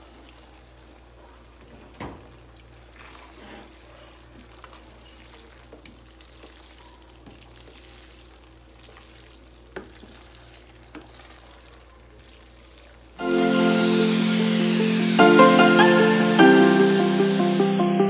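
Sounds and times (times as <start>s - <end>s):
wet stirring of pasta: 0.0s - 13.2s.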